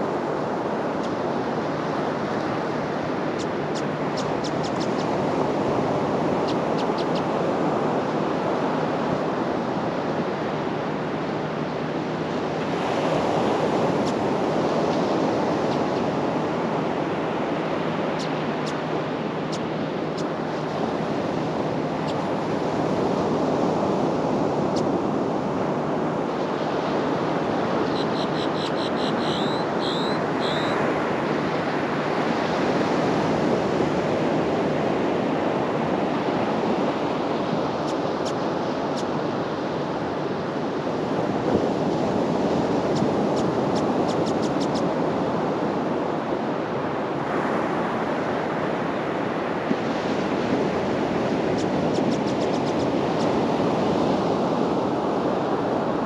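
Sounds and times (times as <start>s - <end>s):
ocean surf on beach: 0.0s - 56.0s
high chirps: 27.8s - 30.8s.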